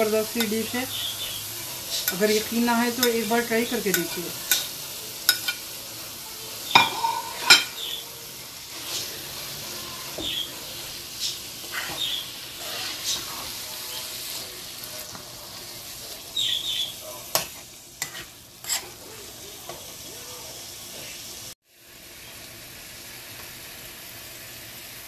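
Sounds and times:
spoon scraping frying pan: 0.0s - 5.7s, 6.7s - 8.0s, 8.7s - 15.3s, 16.1s - 19.9s
frying sizzle: 0.0s - 25.0s
spoon tapping pan: 3.9s - 4.7s, 5.3s - 5.6s, 6.7s - 8.0s.

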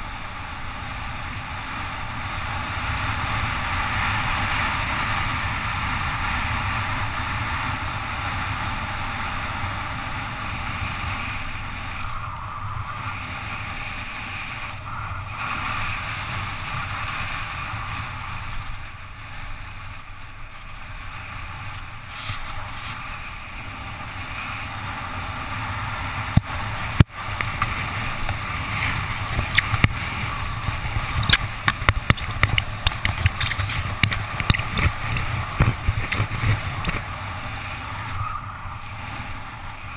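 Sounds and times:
tyre noise on wet asphalt: 0.0s - 39.9s
sharp clicks and knocks: 31.1s - 37.0s.

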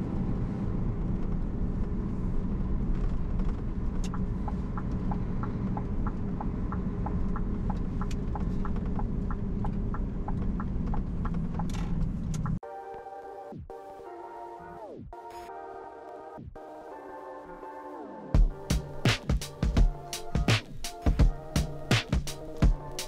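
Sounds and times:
diesel engine and road rumble: 0.0s - 12.6s, 18.4s - 23.0s
turn signal ticking: 3.3s - 12.6s.

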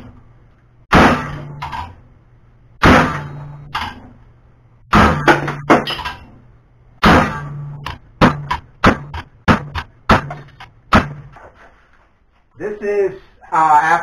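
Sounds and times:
hammer striking metal blade: 7.0s - 11.3s.

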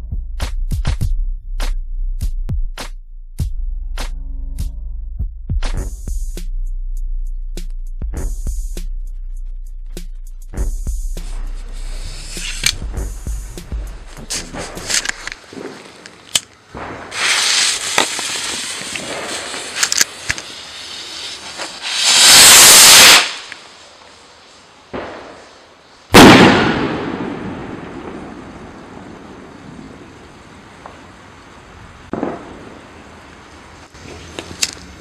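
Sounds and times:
rocket hissing whoosh: 11.1s - 29.7s
rocket bursting bang: 16.7s - 20.5s, 21.3s - 23.6s, 24.9s - 25.5s, 26.1s - 30.2s, 32.1s - 32.9s.

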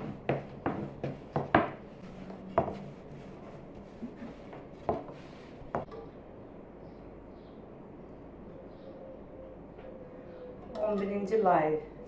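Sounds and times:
rolling pin knocking on board: 0.0s - 1.8s
rolling pin rubbing over dough: 0.0s - 5.9s.

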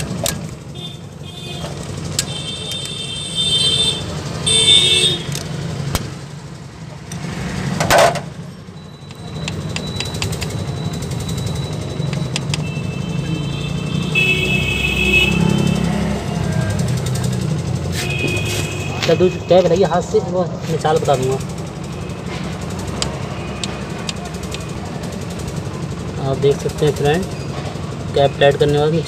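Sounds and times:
socket wrench clicking: 0.0s - 0.6s, 1.8s - 3.0s, 5.2s - 6.1s, 9.1s - 10.7s, 12.0s - 12.7s
traffic rumble: 0.0s - 29.0s
high horn-like tones: 0.8s - 5.4s, 12.6s - 16.2s, 17.9s - 19.8s.

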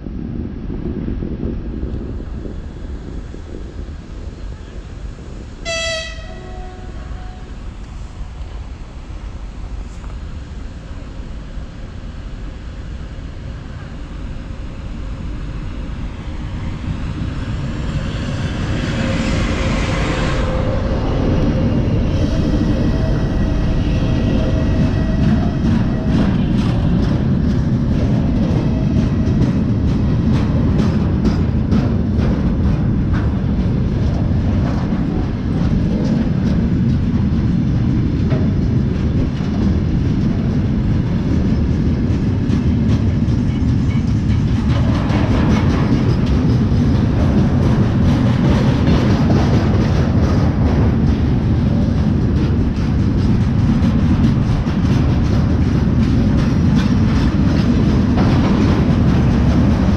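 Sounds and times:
diesel locomotive engine passing: 0.0s - 59.9s
freight train rumble: 0.0s - 59.9s
wheels clacking over rail joints: 19.9s - 59.9s.

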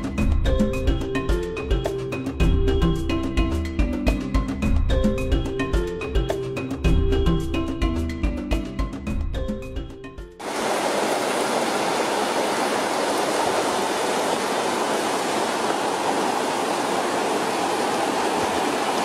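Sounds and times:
music: 0.0s - 10.4s
river water rushing over rocks: 10.4s - 19.0s.

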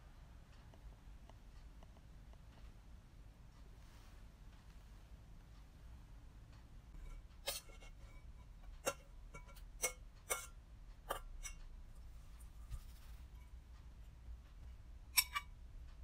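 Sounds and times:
metal tongs clinking on bowl: 15.1s - 15.5s.

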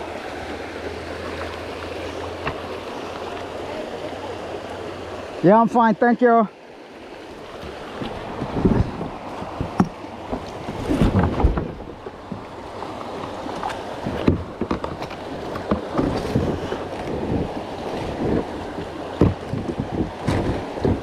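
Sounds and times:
paddle splashing water: 0.0s - 21.0s
paddle knocking plastic kayak: 1.4s - 3.4s, 7.4s - 21.0s
wind noise on microphone: 7.6s - 12.5s, 13.9s - 21.0s.

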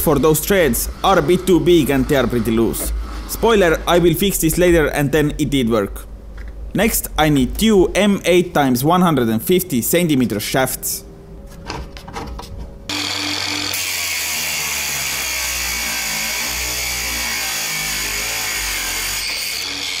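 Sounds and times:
cut-off saw grinding through steel: 12.9s - 20.0s.

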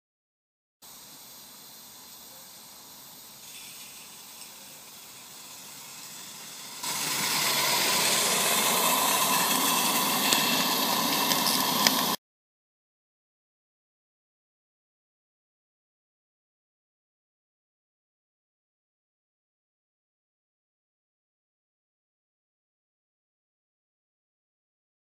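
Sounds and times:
model steam locomotive hissing: 0.8s - 12.2s.

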